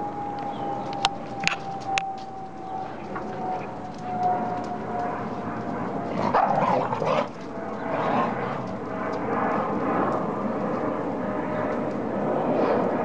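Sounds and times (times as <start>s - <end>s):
dogs barking: 6.1s - 8.7s
dogs vocalising while play-fighting: 6.1s - 8.7s.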